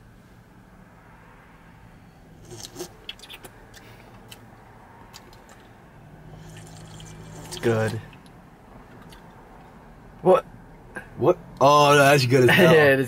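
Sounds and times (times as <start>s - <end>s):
low hum inside car: 0.0s - 13.0s
person sipping and swallowing: 2.4s - 4.4s, 6.3s - 8.3s.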